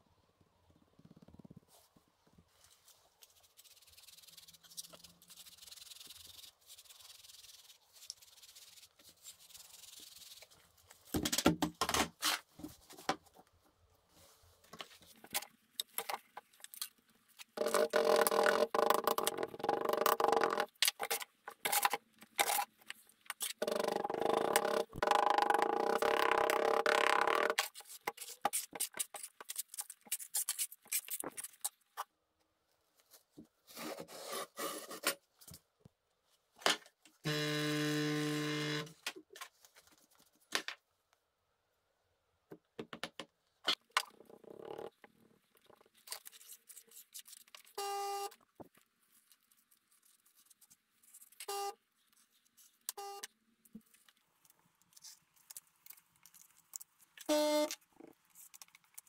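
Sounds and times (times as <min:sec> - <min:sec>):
low buzzing tone: 0:37.3 - 0:39.0.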